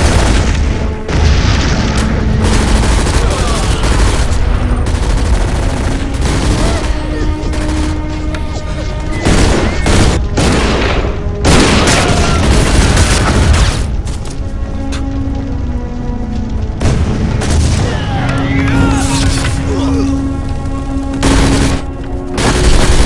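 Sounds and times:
booming blasts: 0.0 - 7.0, 9.2 - 14.1, 16.7 - 18.3
rapid gunfire: 0.0 - 8.2, 9.2 - 13.9, 21.2 - 23.0
dramatic music score: 0.0 - 23.0.

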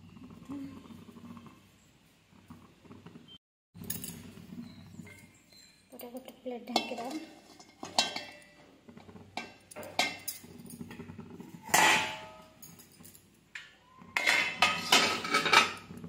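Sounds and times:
metal plates clanking on pot: 6.0 - 12.8, 13.6 - 16.0.

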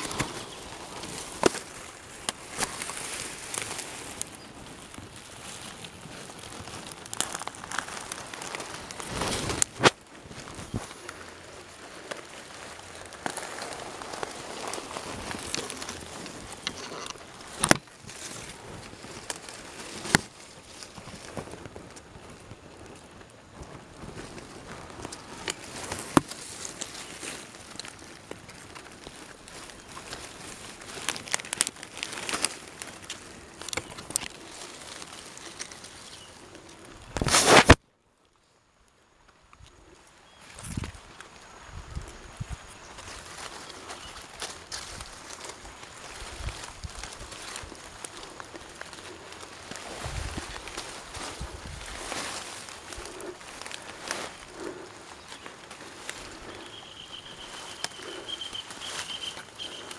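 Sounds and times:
rustling of dry grass and cloth: 0.0 - 59.9.

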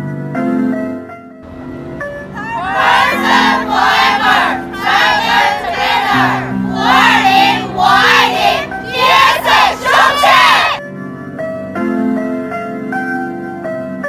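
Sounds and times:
background music: 1.4 - 13.9
women chanting in unison: 2.4 - 10.8.

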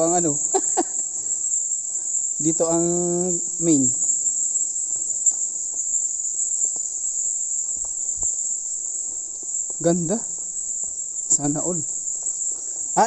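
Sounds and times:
high-pitched insect chirring: 0.0 - 13.0.

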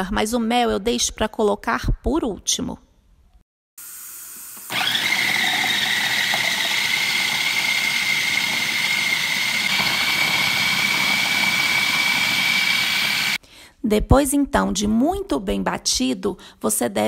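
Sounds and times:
food processor motor whining: 4.6 - 13.4.

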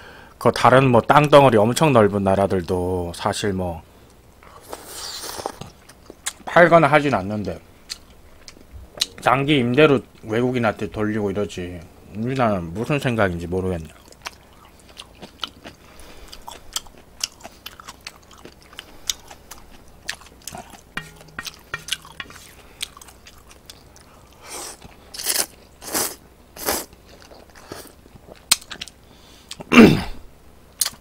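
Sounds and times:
wet chewing and mouth clicks: 13.9 - 25.5, 26.6 - 29.6.

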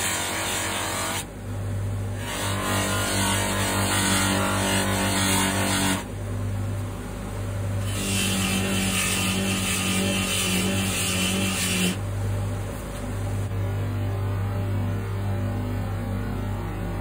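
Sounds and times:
metal rasping on buffing wheel: 7.8 - 12.0.

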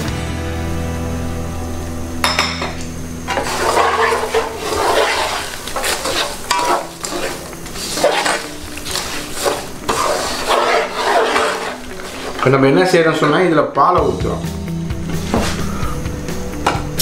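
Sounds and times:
metal skimmer scraping frying pan: 3.2 - 13.5.

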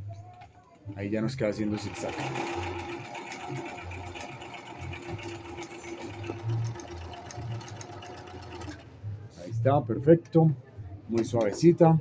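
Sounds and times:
sewing machine motor hum: 1.0 - 8.9
sewing machine needle ticking: 1.7 - 8.8.

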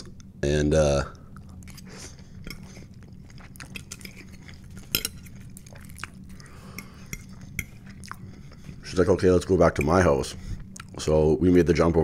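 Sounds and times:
steady low hum: 0.0 - 12.0
close chewing and mouth sounds: 1.1 - 11.2
fork clinking on a plate: 4.8 - 5.4.

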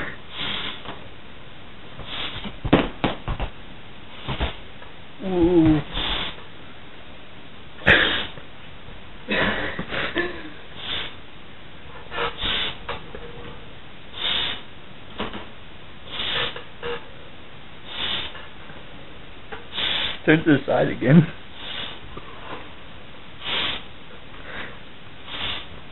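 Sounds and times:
breathy nose puffs into glove: 0.0 - 0.9, 2.0 - 2.6, 4.1 - 4.6, 5.7 - 6.4, 10.8 - 11.2, 12.2 - 12.8, 14.2 - 14.6, 16.1 - 16.6, 17.9 - 18.4, 19.7 - 20.2, 21.6 - 22.0, 23.4 - 23.9, 25.3 - 25.7.

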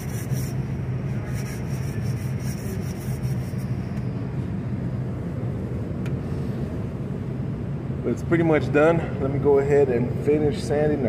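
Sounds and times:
sanding scratching: 0.0 - 3.9
machinery hum: 0.0 - 11.0.

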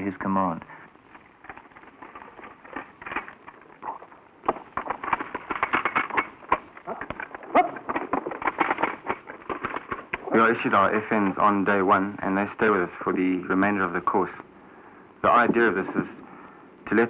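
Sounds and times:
machine guns clicking and clacking: 4.4 - 11.7.

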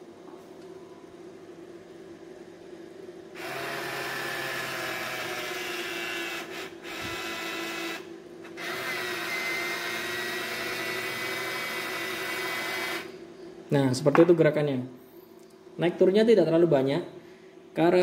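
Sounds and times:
small electric motor whirring: 3.4 - 13.2.

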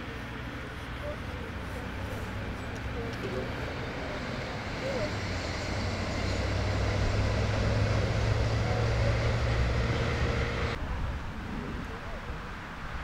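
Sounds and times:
distant engine droning: 0.0 - 13.0.

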